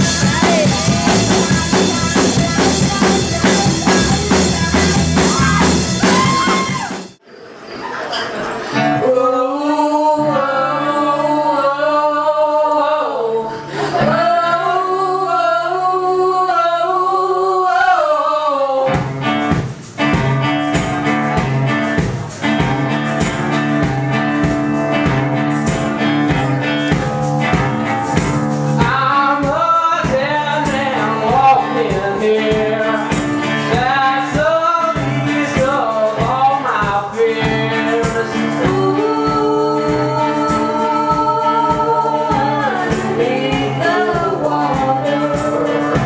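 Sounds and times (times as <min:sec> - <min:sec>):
people singing: 0:00.0 - 0:07.0, 0:08.7 - 0:19.0, 0:28.7 - 0:46.0
held bass notes: 0:00.0 - 0:07.2, 0:18.9 - 0:46.0
steady drum beat: 0:00.0 - 0:07.2, 0:18.9 - 0:46.0
acoustic guitar: 0:00.0 - 0:46.0.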